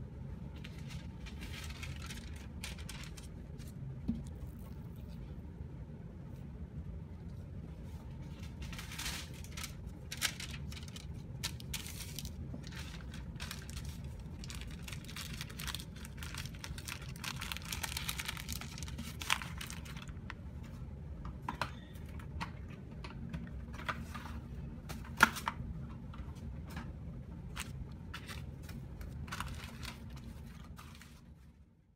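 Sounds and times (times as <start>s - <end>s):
steady low hum: 0.0s - 31.9s
cling film and paper crinkling: 0.6s - 5.3s, 7.9s - 20.4s, 27.5s - 31.6s.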